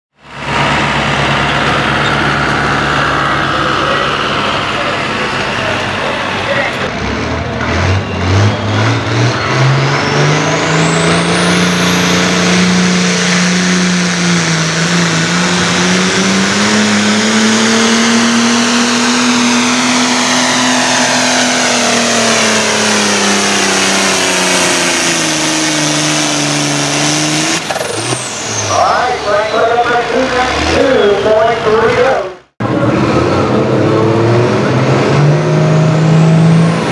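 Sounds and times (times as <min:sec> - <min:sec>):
tractor engine at full throttle: 0:00.1 - 0:36.9
thin rising whine: 0:08.0 - 0:31.9.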